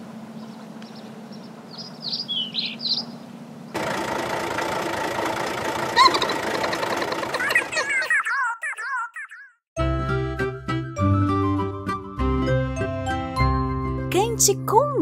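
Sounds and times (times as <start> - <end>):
bird chirps: 0.4 - 3.2
loud engine noise: 3.7 - 7.8
toy tractor engine humming: 3.8 - 8.2.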